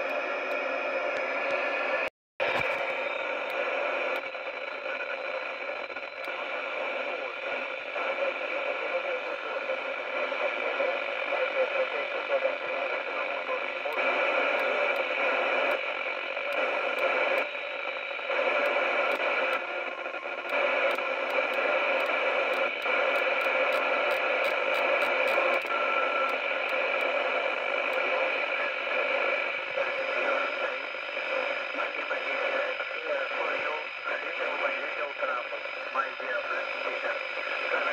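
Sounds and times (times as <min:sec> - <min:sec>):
radio static hiss: 0:00.0 - 0:37.9
radio channel change ticks: 0:18.4 - 0:27.2.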